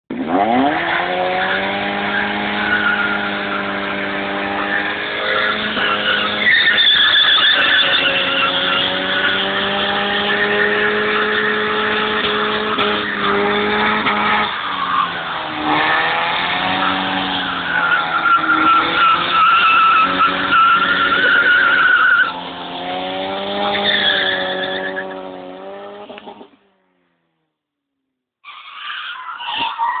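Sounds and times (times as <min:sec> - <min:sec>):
car engine revving: 0:00.1 - 0:27.7
tyres squealing: 0:04.5 - 0:12.2, 0:16.7 - 0:22.4, 0:23.5 - 0:25.2.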